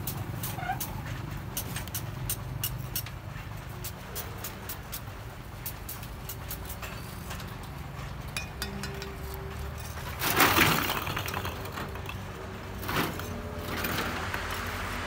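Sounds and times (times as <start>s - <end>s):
bricks and tools clinking: 8.4s - 12.2s.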